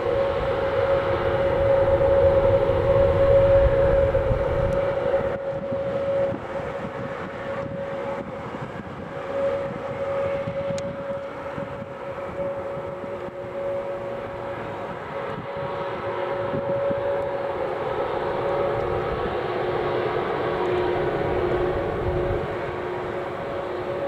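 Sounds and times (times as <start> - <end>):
low rumble: 0.0 - 15.8
jet engine whine: 0.0 - 24.0.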